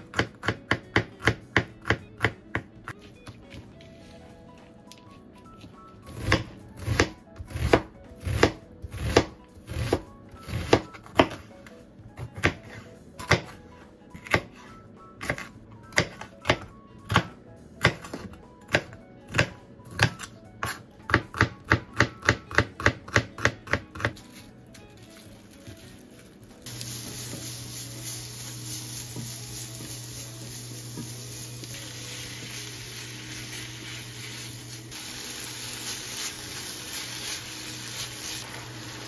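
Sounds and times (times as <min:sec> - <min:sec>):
knife chopping on plastic board: 0:06.2 - 0:11.4, 0:12.2 - 0:13.6, 0:15.2 - 0:24.2.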